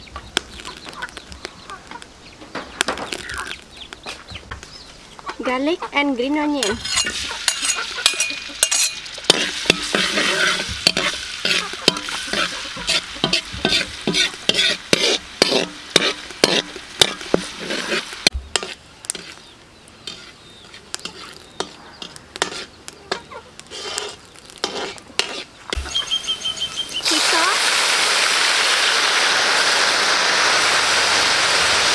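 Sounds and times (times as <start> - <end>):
garlic sizzling in hot oil: 0.0 - 2.1, 2.9 - 4.0, 6.5 - 31.9
metal spatula scraping a wok: 6.6 - 26.3.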